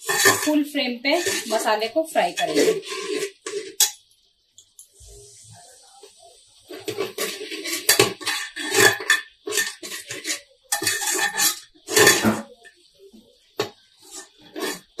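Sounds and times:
spatula scraping pressure cooker: 0.0s - 4.0s, 6.7s - 12.7s, 13.6s - 15.0s.

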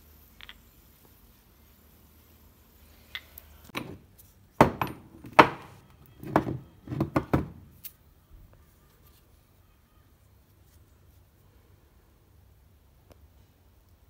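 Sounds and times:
metal ingots knocking together: 3.8s - 7.7s.

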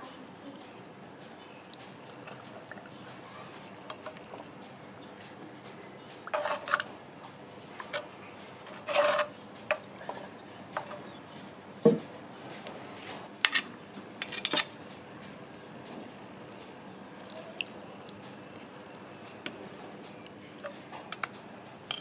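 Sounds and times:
metal tongs scraping clay pot: 6.3s - 6.9s, 8.7s - 9.4s.

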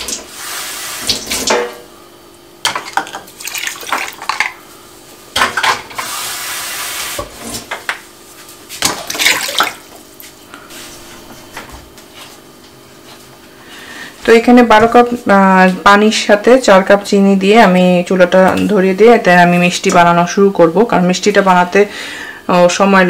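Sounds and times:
water pouring into a metal pot: 3.4s - 4.4s.

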